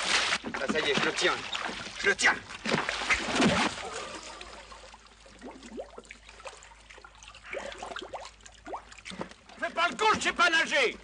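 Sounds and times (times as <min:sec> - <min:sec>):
water splashing: 0:00.0 - 0:11.0.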